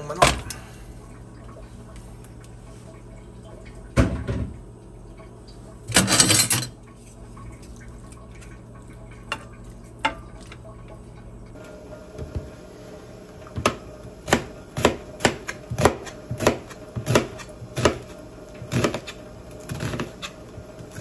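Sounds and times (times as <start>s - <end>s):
steady low hum: 4.5s - 21.0s
dishes and utensils clattering: 5.9s - 6.8s.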